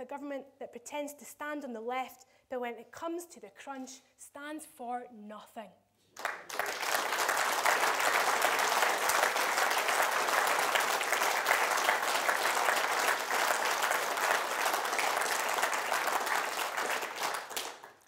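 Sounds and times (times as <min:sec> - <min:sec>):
audience applauding: 0:06.2 - 0:18.0.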